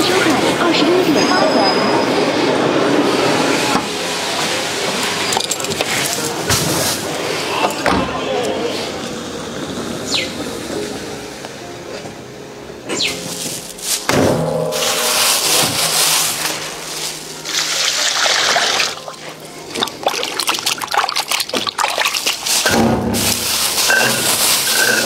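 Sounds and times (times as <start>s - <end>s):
hands sloshing in water: 17.4s - 22.7s
tap water pouring into metal bowl: 17.5s - 19.0s, 19.7s - 22.6s.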